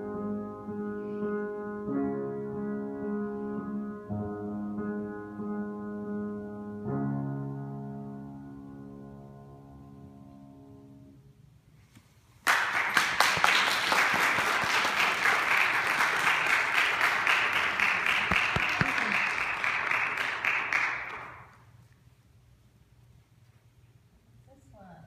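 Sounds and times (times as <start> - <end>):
piano chord: 0.0 - 11.4
audience applause: 12.4 - 21.6.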